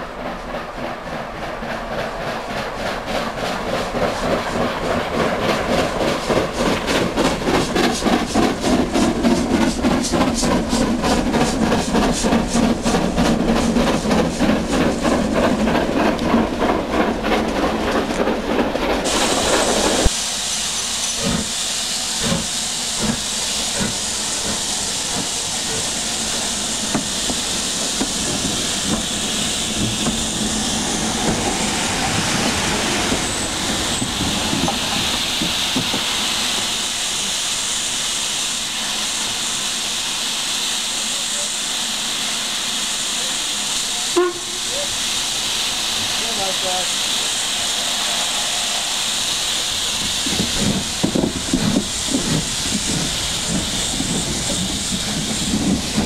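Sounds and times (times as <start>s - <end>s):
steam locomotive chimney exhaust beating: 0.0s - 56.0s
hiss of escaping steam: 19.0s - 56.0s.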